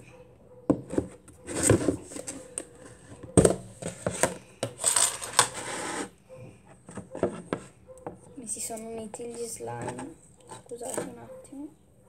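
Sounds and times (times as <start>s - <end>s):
scraping rustle of plastic: 3.8s - 6.2s.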